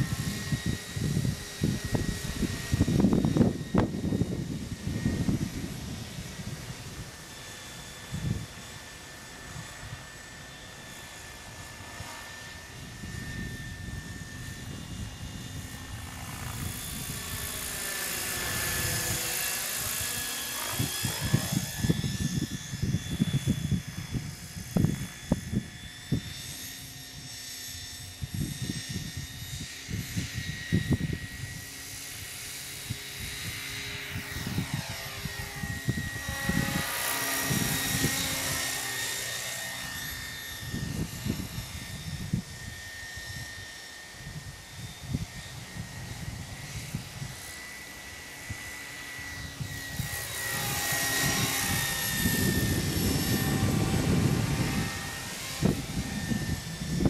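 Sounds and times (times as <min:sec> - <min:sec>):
model helicopter motor whine: 0:00.0 - 0:57.0
rotor whoosh: 0:49.1 - 0:57.0.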